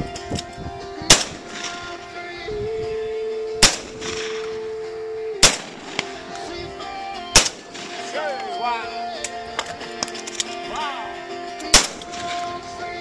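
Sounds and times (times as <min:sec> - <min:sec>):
shotgun shots: 0:01.1 - 0:02.0, 0:03.6 - 0:04.6, 0:05.4 - 0:06.3, 0:07.3 - 0:08.4, 0:11.7 - 0:12.6.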